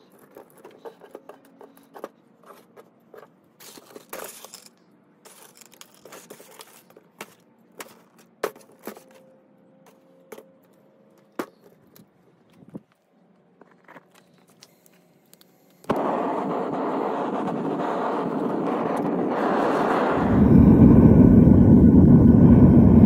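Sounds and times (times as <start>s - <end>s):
copper wire rustling and crinkling: 0.0s - 9.3s, 9.9s - 15.8s.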